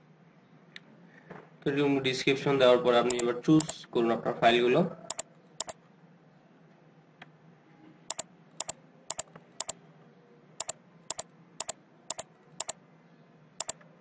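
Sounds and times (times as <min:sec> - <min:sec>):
computer mouse double clicks: 0:03.1 - 0:03.8, 0:05.1 - 0:05.8, 0:08.1 - 0:09.7, 0:10.6 - 0:12.8.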